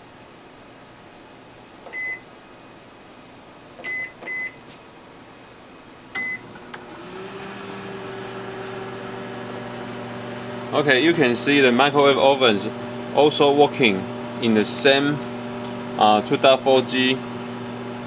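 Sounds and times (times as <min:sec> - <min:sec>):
microwave keypad beeping: 0:01.9 - 0:02.3, 0:03.8 - 0:04.6, 0:06.2 - 0:06.5
microwave oven humming: 0:06.1 - 0:18.0.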